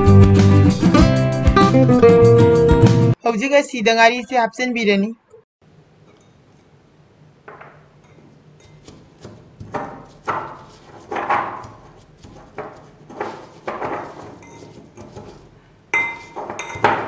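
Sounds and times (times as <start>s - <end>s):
metal pestle pounding in mortar: 16.0s - 17.0s.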